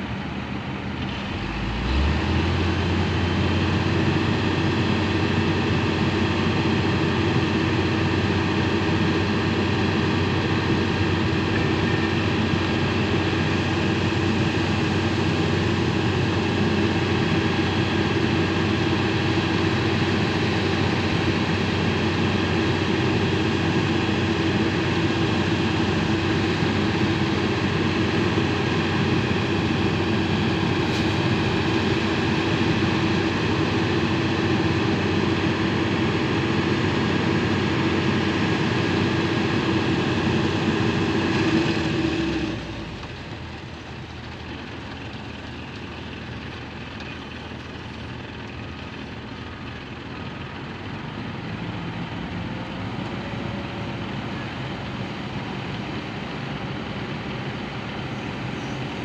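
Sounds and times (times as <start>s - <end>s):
heavy diesel engines running: 0.0s - 59.0s.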